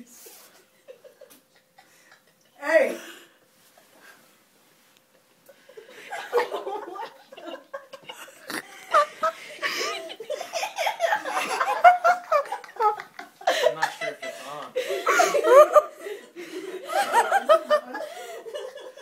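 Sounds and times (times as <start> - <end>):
group of people laughing: 5.2 - 19.0.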